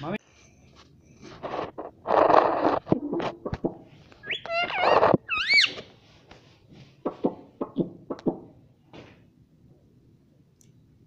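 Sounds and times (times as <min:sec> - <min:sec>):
parakeet squawking: 0:04.2 - 0:05.8
sharp taps and knocks: 0:07.0 - 0:08.5.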